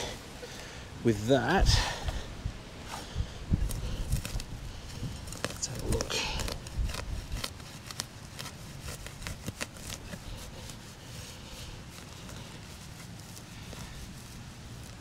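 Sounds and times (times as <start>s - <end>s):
soil and roots crackling: 0.0s - 15.0s.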